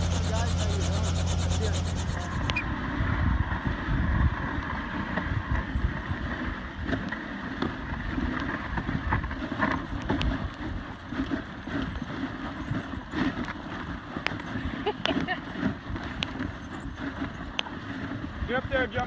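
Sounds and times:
sled runners hissing on snow: 0.0s - 2.6s
sled clicks and knocks: 4.6s - 19.0s.

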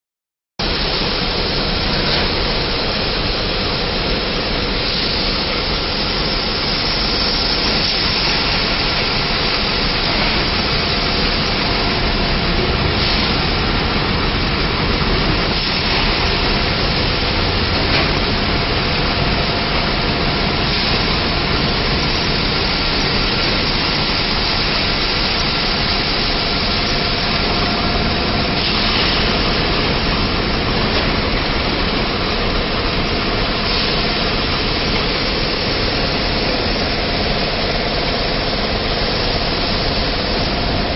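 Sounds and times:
packing machine hum and hiss: 0.6s - 40.9s.

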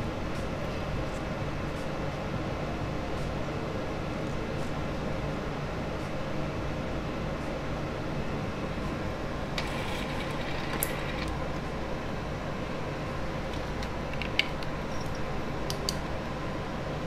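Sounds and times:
workbench equipment hum: 6.8s - 17.0s.

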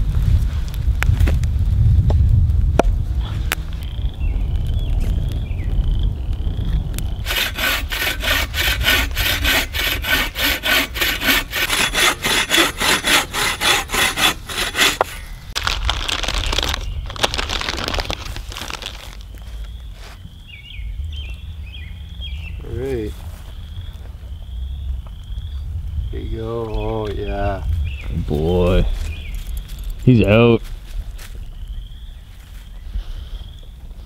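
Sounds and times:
rough noise: 6.6s - 20.2s
hand saw cutting log: 7.2s - 15.3s.

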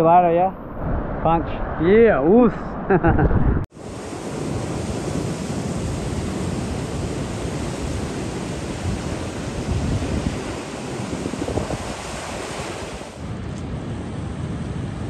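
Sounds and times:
wind buffeting microphone: 0.5s - 15.0s
surf breaking against rocks: 3.8s - 13.2s.

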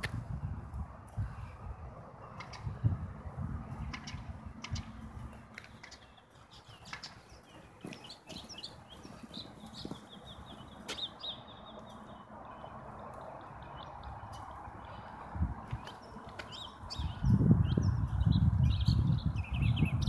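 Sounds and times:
small bird chirping: 5.7s - 14.6s.

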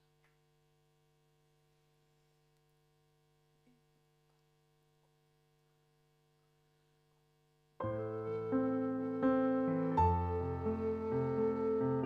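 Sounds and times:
faint electrical hum: 0.0s - 7.9s.

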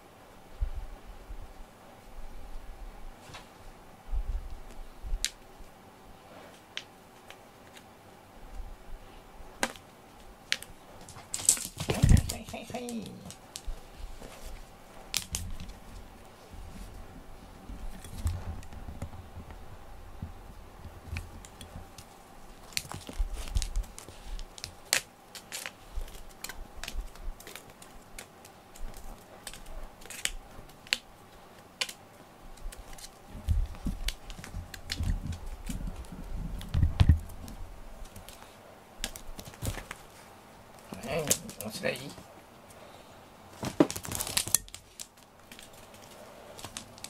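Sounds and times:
faint steady hum: 0.0s - 47.0s
cats playing with ball: 9.6s - 42.3s, 43.5s - 47.0s.

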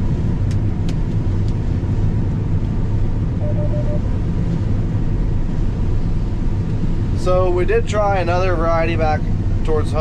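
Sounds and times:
combine harvester engine drone: 0.0s - 10.0s
quick beeps: 3.4s - 4.0s.

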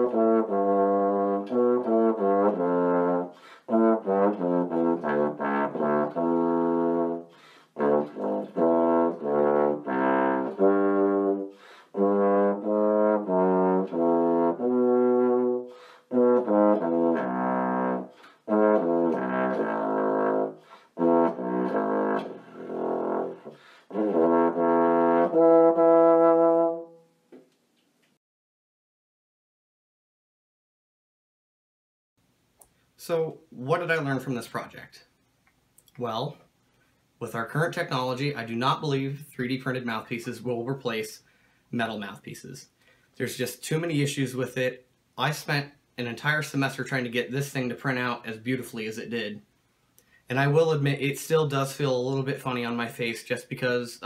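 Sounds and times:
solo trombone: 0.0s - 27.2s.

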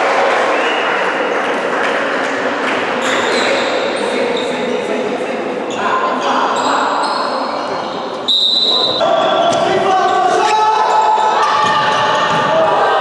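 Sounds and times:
echoing voices in sports hall: 0.0s - 13.0s
sneakers squeaking on wooden floor: 3.0s - 4.7s, 5.7s - 10.3s.

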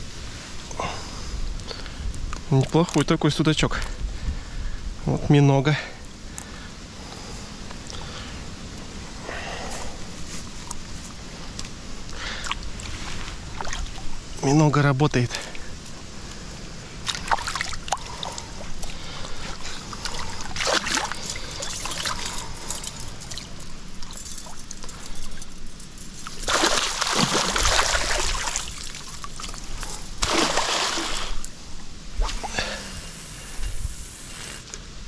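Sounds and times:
water splashing and sloshing: 9.8s - 14.4s, 15.3s - 32.8s
small clicks and rustles: 17.9s - 26.5s.

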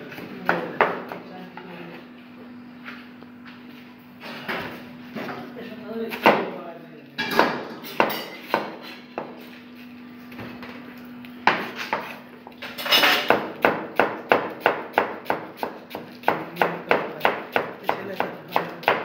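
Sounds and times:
knife chopping cabbage: 7.4s - 9.5s, 11.4s - 12.6s, 13.2s - 19.0s.

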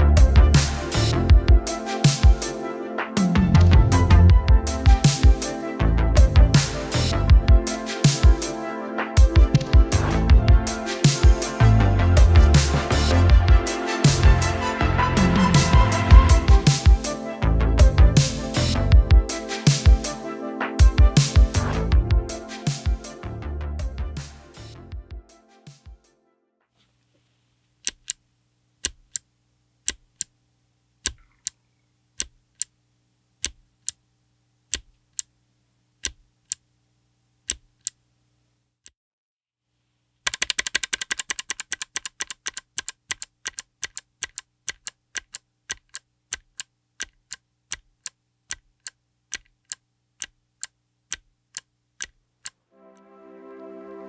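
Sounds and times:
mechanical keyboard switch clicking: 27.8s - 28.2s, 40.3s - 50.3s.

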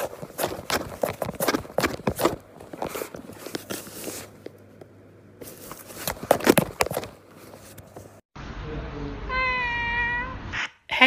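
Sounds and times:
cardboard crackling and crunching: 0.0s - 4.4s, 5.4s - 8.2s.

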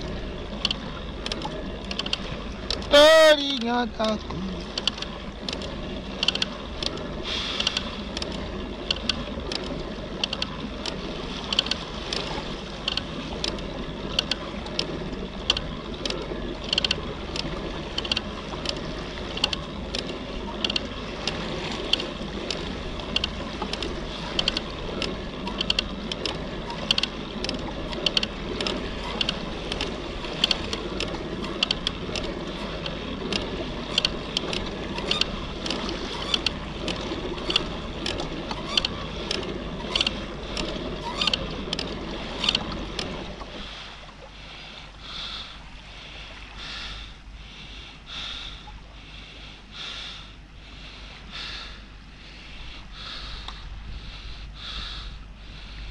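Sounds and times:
rhythmic clicking: 0.0s - 43.5s
water wash: 0.0s - 47.2s.

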